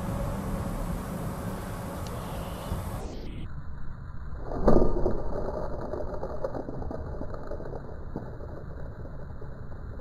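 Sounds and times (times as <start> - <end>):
thunder rumbling with crackle: 2.7 - 10.0.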